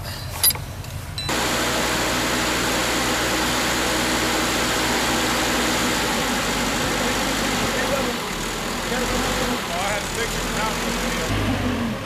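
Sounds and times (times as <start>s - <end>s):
engine running: 1.3s - 12.0s.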